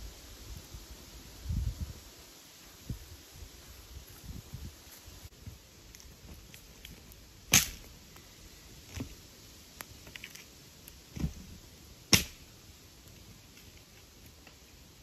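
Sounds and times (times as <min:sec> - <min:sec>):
campfire crackling: 0:00.0 - 0:15.0
loud wood cracks: 0:06.4 - 0:07.9, 0:12.1 - 0:12.5.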